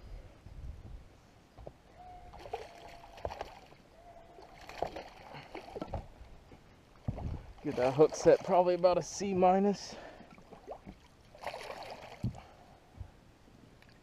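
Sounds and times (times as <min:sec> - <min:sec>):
fish splashing in water: 0:02.3 - 0:03.8, 0:04.4 - 0:06.0, 0:10.4 - 0:12.4.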